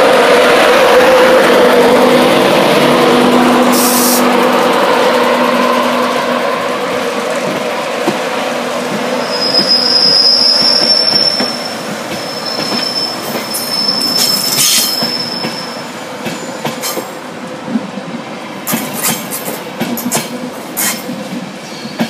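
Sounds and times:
train coaches rumbling past: 0.0s - 22.0s
high-pitched wheel squeal: 9.2s - 15.8s.

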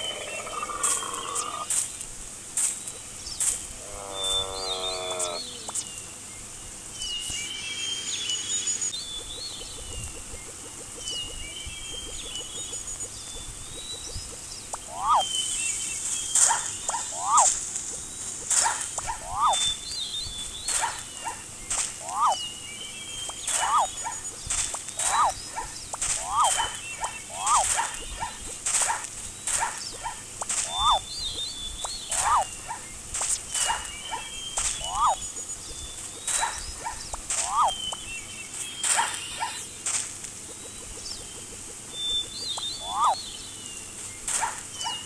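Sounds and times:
zebras barking: 14.8s - 15.2s, 16.4s - 17.6s, 18.5s - 19.6s, 23.5s - 24.2s, 25.0s - 31.0s, 32.1s - 32.9s
thin whistling: 16.4s - 17.5s, 31.9s - 32.5s, 33.6s - 35.2s
sharp swishing: 18.5s - 19.6s, 23.4s - 31.0s, 32.0s - 32.5s.

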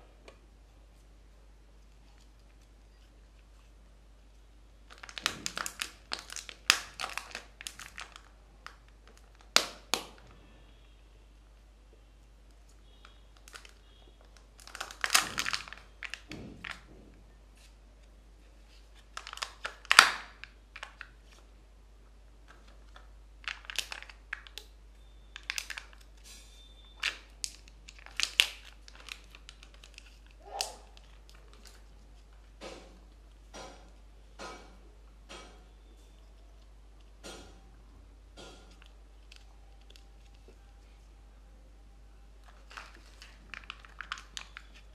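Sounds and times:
plastic crackling: 4.3s - 10.4s, 12.4s - 21.5s, 22.4s - 34.7s, 38.3s - 41.2s, 42.3s - 44.9s
foil crinkling: 4.9s - 10.2s, 13.4s - 16.9s, 18.6s - 21.5s, 22.5s - 32.6s, 42.4s - 44.9s.

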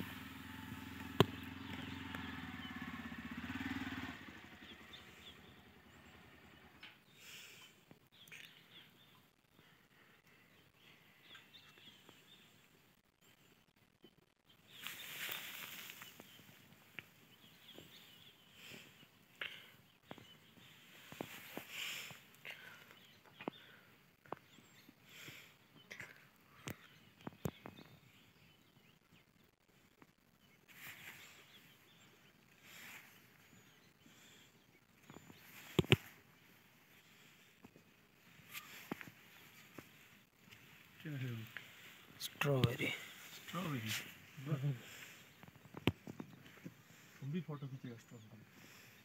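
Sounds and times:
faint bird chirps: 0.0s - 49.0s
faint outdoor ambience: 0.0s - 49.0s
faint rustling: 14.7s - 24.5s, 35.0s - 47.4s.

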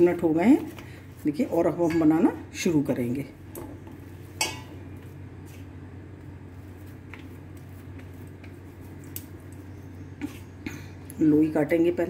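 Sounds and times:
steady low hum: 0.0s - 12.0s
hands kneading dough: 3.9s - 12.0s.

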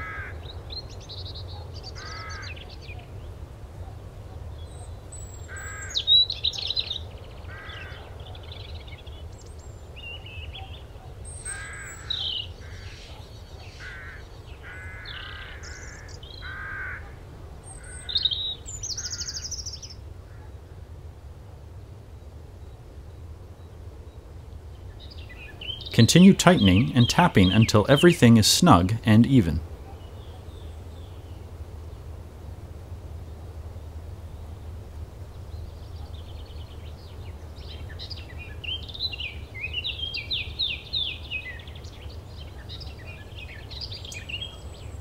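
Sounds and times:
birds cawing: 0.0s - 0.5s, 2.0s - 2.6s, 5.5s - 6.0s, 7.4s - 8.2s, 11.4s - 17.2s, 17.8s - 20.6s
bird chirps and trills: 24.1s - 28.0s.

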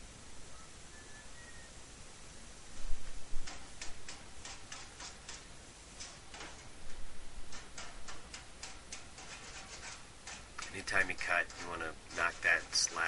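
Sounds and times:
hand file rasping on steel: 7.5s - 13.0s.

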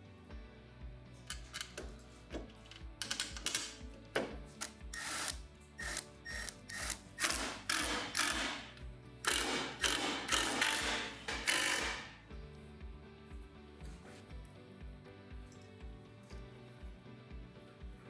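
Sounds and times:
background music with steady beat: 0.0s - 18.0s
cordless drill driving screws: 4.9s - 12.1s.

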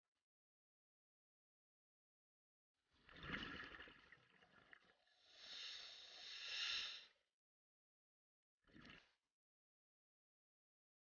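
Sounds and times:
hissing breath through regulator: 5.2s - 7.1s.

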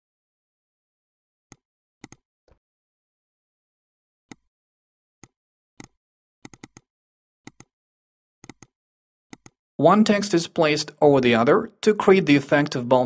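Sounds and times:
computer mouse clicks: 1.5s - 2.2s, 5.2s - 6.9s, 7.5s - 7.7s, 8.4s - 9.6s.

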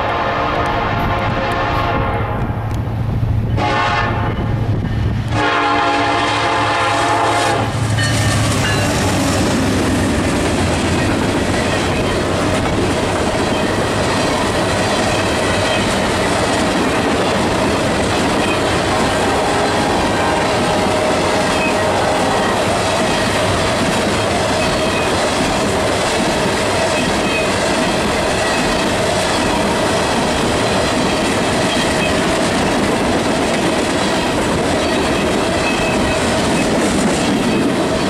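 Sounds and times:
locomotive horn: 0.0s - 2.8s, 3.5s - 4.6s, 5.3s - 8.9s, 18.6s - 25.0s
train wheels on rails: 0.0s - 38.0s
locomotive engine running: 4.6s - 38.0s.

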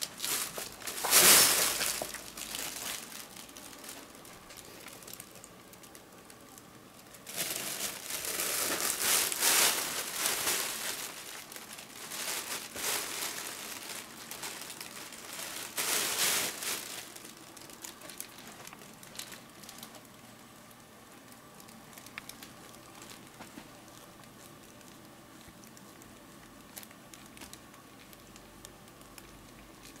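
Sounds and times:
fabric tunnel rustling and crinkling: 0.0s - 6.0s, 7.0s - 20.1s.

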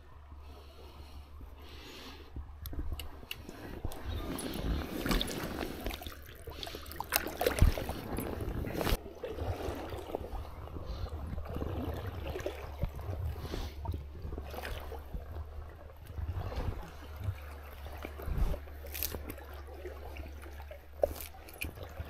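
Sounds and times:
water sloshing and trickling: 0.4s - 22.0s.

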